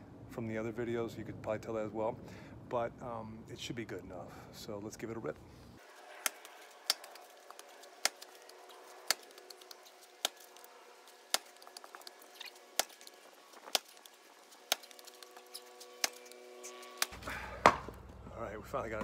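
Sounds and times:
axe striking wood: 6.2 - 8.3, 11.3 - 18.0.

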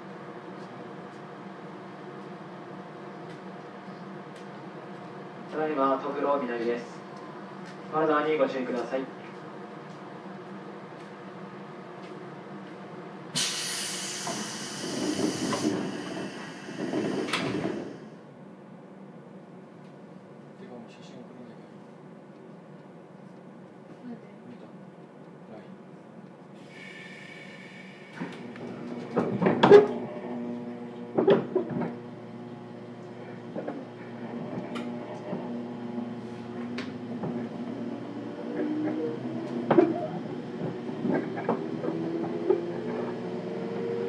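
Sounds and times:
train equipment hum: 0.0 - 7.9, 8.6 - 20.5, 24.7 - 44.0
air hiss of train doors: 13.4 - 18.2, 26.6 - 28.5.

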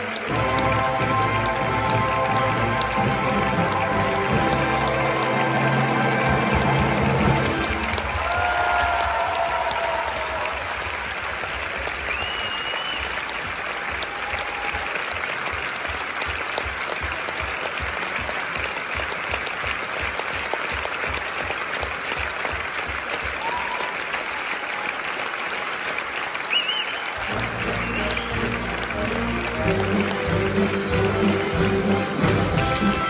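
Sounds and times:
music: 0.0 - 9.0, 27.2 - 33.0
audience applauding: 0.0 - 33.0.

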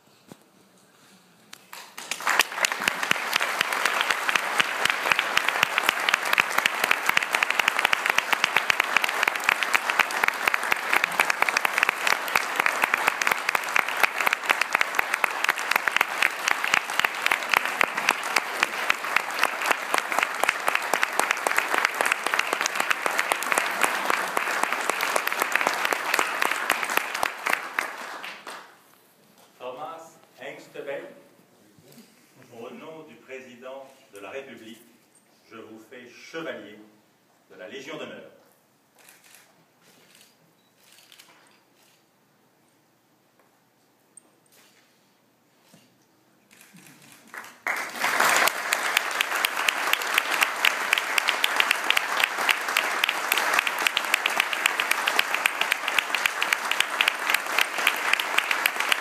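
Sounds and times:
audience applauding: 1.6 - 28.8, 46.5 - 59.0.

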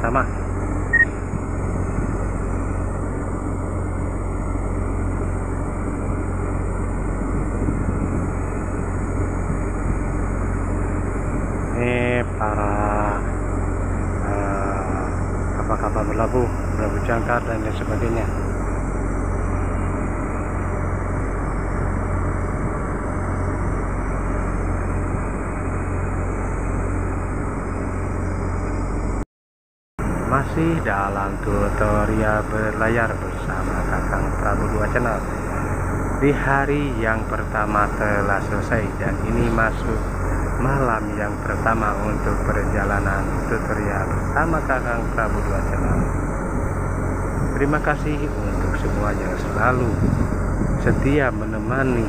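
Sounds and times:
boat engine droning: 0.0 - 29.2, 30.0 - 52.0
steady hiss: 30.1 - 52.0.

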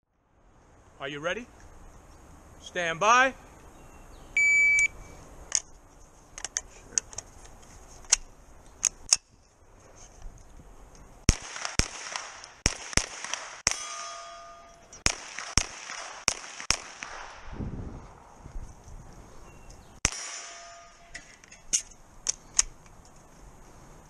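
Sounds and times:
rapid gunshots: 11.3 - 13.8, 15.0 - 17.5
steel target ringing: 13.6 - 15.1, 20.0 - 21.7.

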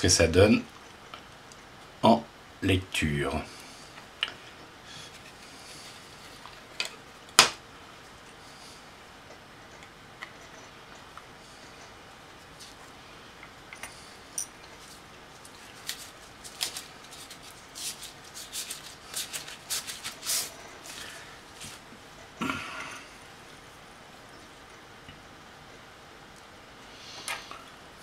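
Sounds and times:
clicks and crinkling: 14.6 - 21.1.

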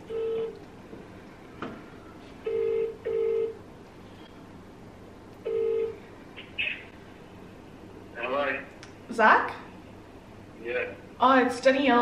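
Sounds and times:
phone ringback tone: 0.1 - 0.6, 2.4 - 3.6, 5.5 - 6.0.

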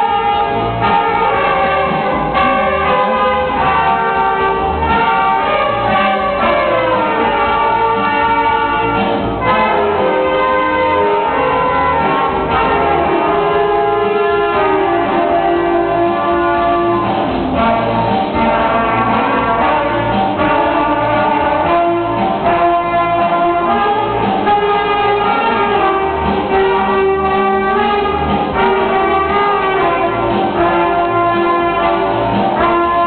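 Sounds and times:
saxophones and brass band playing: 0.0 - 33.0.

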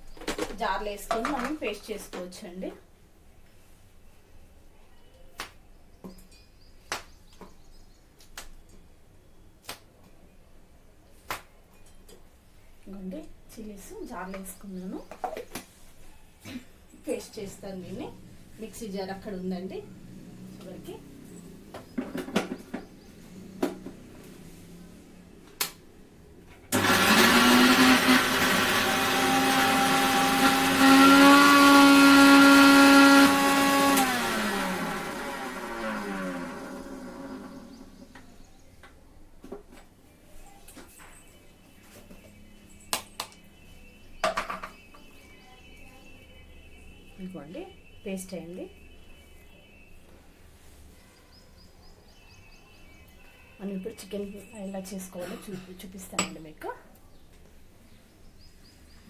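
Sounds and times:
mixer grinder motor whine: 26.7 - 38.0.

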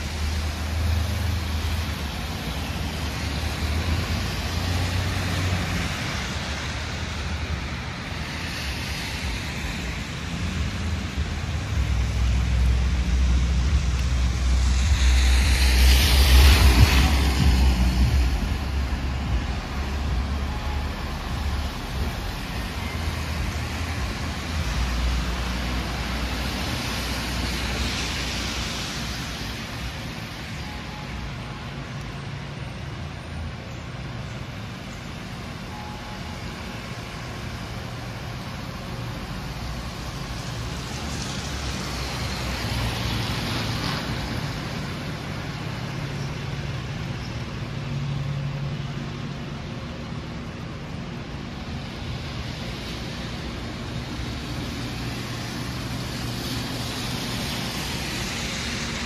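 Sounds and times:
tyres hissing on wet road: 0.0 - 59.0
low engine rumble: 10.6 - 25.4.

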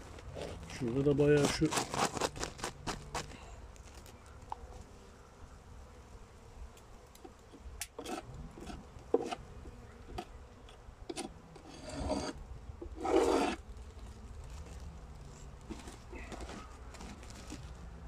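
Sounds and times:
plastic sack rustling: 0.0 - 4.1, 13.6 - 18.0.

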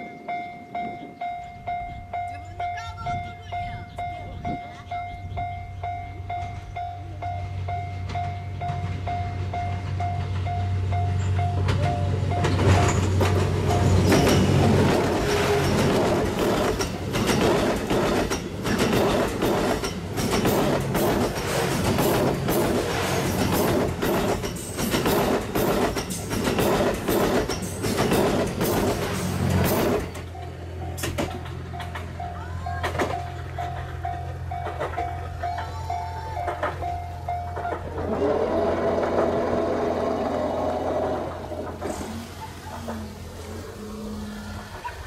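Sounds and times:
level-crossing warning bell: 0.0 - 20.4, 30.2 - 39.1
train wheels clacking: 0.0 - 43.6
diesel train engine hum: 0.0 - 45.0.

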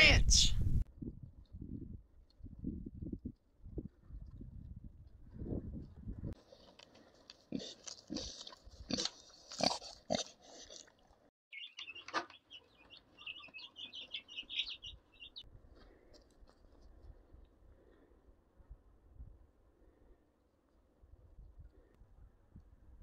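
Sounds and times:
pig crunching and snuffling: 6.4 - 11.3
chicks chirping: 11.5 - 15.4.

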